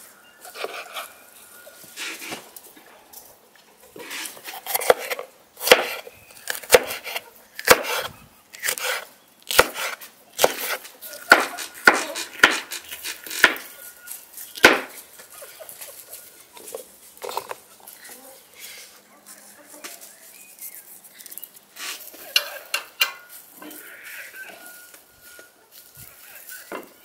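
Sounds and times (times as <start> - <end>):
knife chopping on wooden board: 4.6 - 13.7, 14.6 - 14.9.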